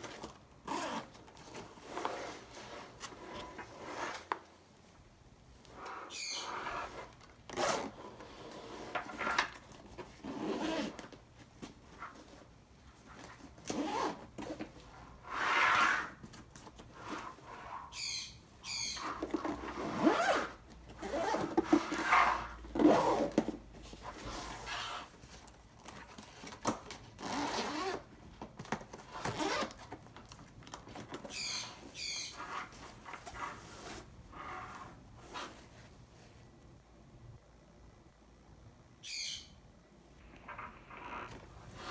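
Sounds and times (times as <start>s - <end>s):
zipper strokes: 0.6s - 4.3s, 5.7s - 9.0s, 10.2s - 11.0s, 13.7s - 14.2s, 15.2s - 16.2s, 19.0s - 23.4s, 27.2s - 28.1s, 29.1s - 29.7s, 32.4s - 35.7s, 40.5s - 41.9s
backpack fabric rustling: 13.8s - 14.2s, 27.2s - 28.0s, 29.4s - 29.7s.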